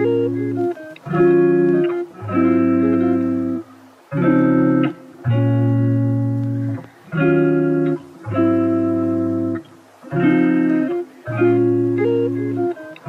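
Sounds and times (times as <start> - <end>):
held music chords: 0.0 - 13.0.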